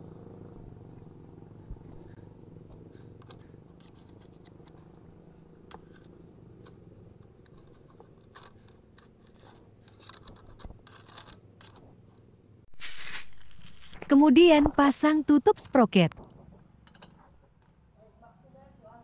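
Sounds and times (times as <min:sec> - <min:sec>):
low steady hum: 0:00.0 - 0:19.0
light metallic clicks and scrapes: 0:02.7 - 0:14.1, 0:16.1 - 0:17.8.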